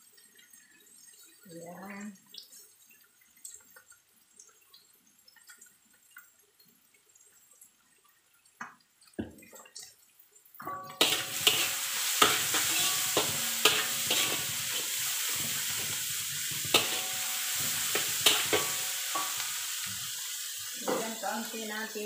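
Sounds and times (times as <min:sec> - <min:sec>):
spatula scraping a wok: 0:10.6 - 0:21.3
onions sizzling in a wok: 0:10.6 - 0:22.0.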